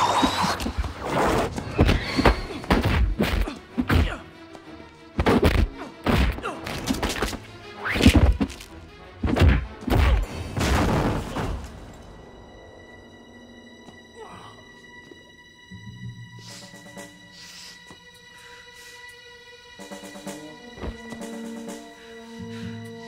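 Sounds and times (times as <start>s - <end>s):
film score music: 0.0s - 23.0s
punch and kick impacts: 2.6s - 4.2s, 5.2s - 7.3s, 9.2s - 11.6s.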